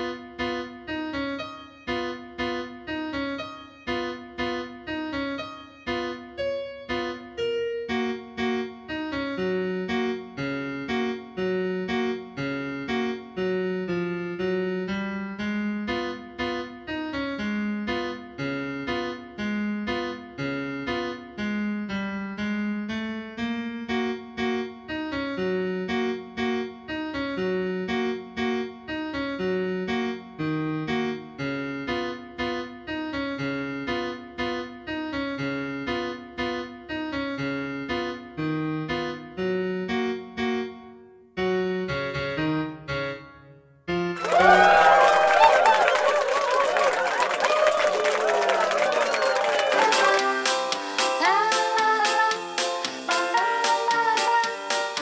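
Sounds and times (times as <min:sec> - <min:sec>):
gentle keyboard music: 0:00.0 - 0:55.0.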